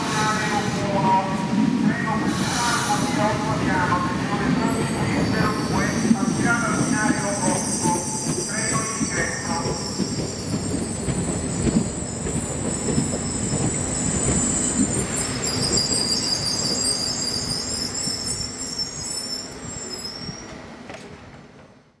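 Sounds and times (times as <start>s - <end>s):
train wheels squealing: 4.6s - 20.6s.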